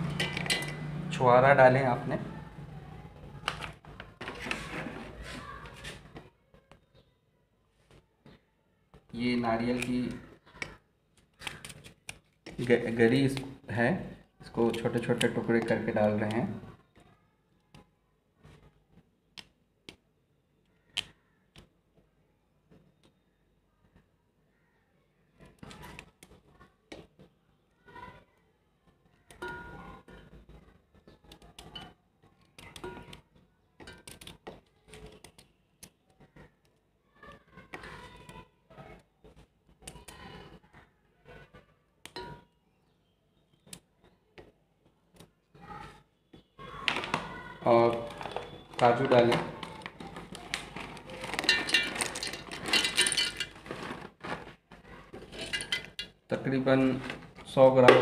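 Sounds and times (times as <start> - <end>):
nuts clattering into metal jar: 47.9 - 56.2.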